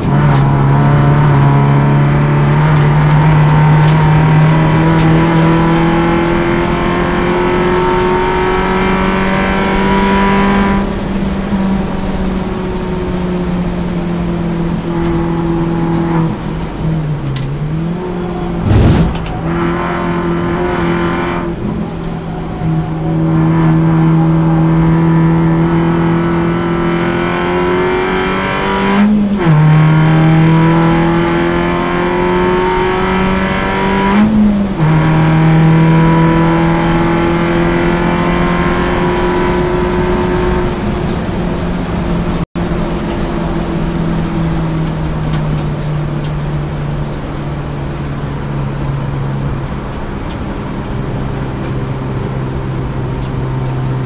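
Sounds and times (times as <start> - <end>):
race car engine revving: 0.0 - 11.0, 14.4 - 45.4
gear upshifts: 17.3 - 21.6.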